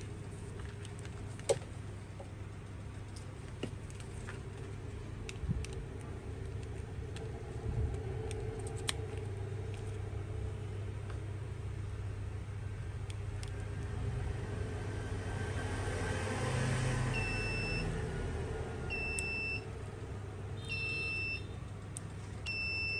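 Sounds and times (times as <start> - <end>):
steady low hum: 0.0 - 22.9.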